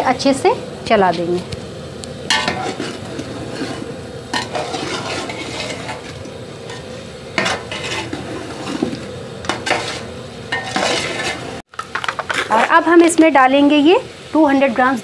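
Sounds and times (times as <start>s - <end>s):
food sizzling in oil: 0.0s - 15.0s
metal spoon scraping a pot: 2.3s - 12.6s.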